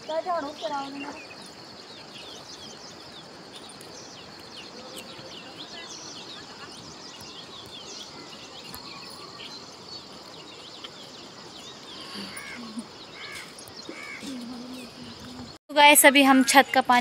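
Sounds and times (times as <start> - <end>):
loud arched calls: 12.0 - 15.4.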